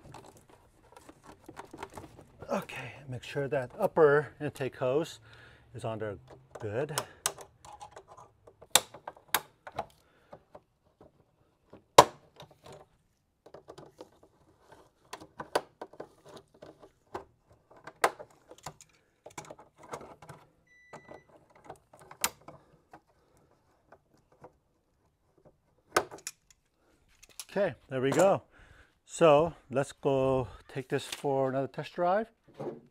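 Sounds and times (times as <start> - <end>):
handling rustle: 0.0 - 2.7.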